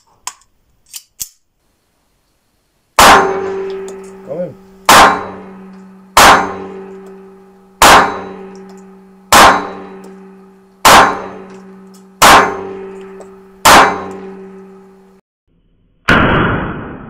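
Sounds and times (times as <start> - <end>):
pistol shots indoors: 4.9 - 7.2, 7.8 - 8.6, 9.3 - 10.0, 10.8 - 12.9, 13.6 - 14.8.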